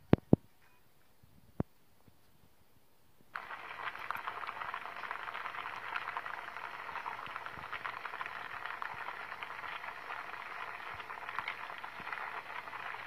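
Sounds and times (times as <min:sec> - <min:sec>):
pot boiling hard: 0:03.3 - 0:13.0.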